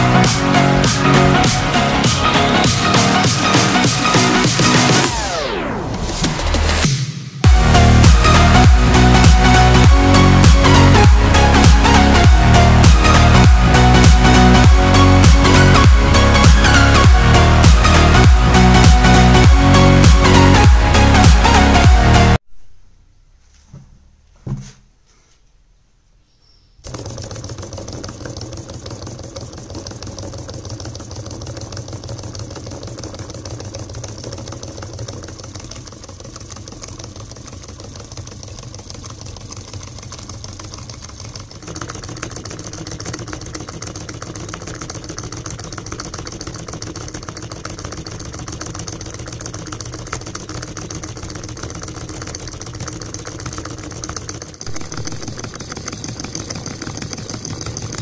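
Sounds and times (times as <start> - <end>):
solenoid engine clattering: 0.0 - 22.5, 26.8 - 58.0.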